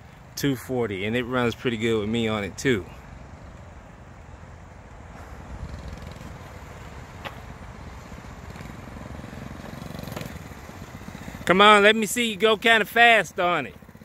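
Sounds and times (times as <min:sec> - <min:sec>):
mini bike engine running: 0:05.2 - 0:11.9, 0:13.6 - 0:14.0.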